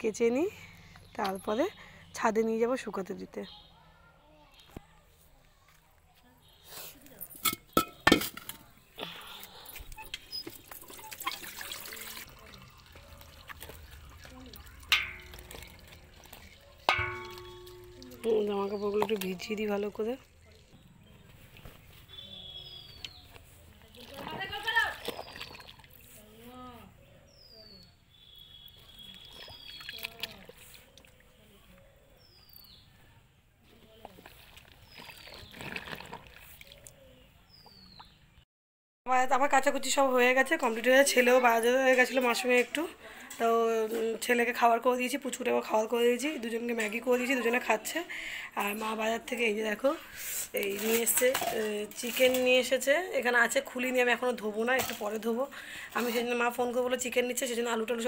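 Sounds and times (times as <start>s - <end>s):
water sloshing and trickling: 9.5s - 26.4s, 28.6s - 31.7s, 33.7s - 37.2s, 50.5s - 55.4s
water splashing into metal basin: 10.5s - 20.0s, 23.9s - 26.0s, 29.0s - 30.8s
basin clink: 14.8s - 19.2s.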